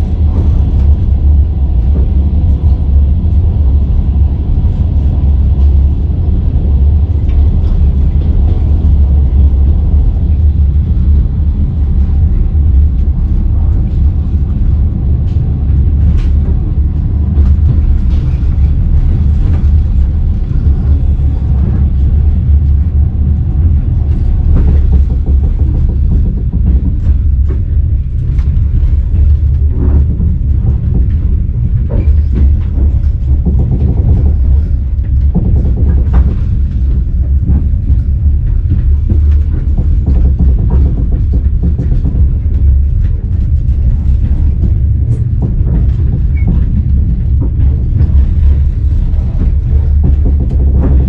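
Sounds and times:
train carriage rumble: 0.0 - 51.0
knocks and clicks: 15.3 - 51.0.

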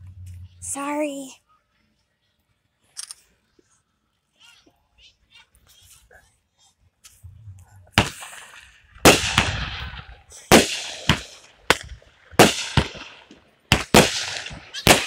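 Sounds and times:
fireworks bangs with hiss: 7.9 - 15.0.

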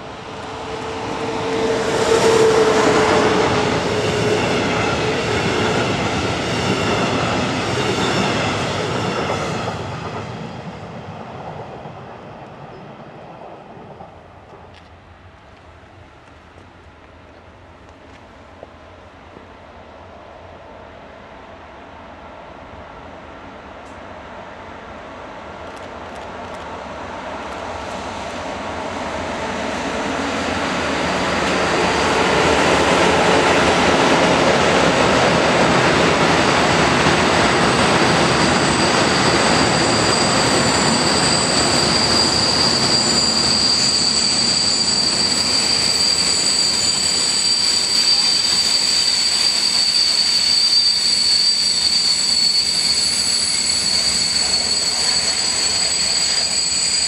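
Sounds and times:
high squeal of train wheels: 0.0 - 11.2, 12.2 - 13.3, 27.2 - 57.0
freight train rumbling past: 0.0 - 57.0.

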